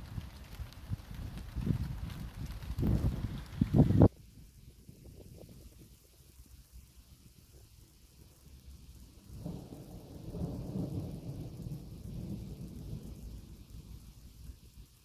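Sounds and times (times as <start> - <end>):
rolling thunder rumble: 9.0 - 14.6.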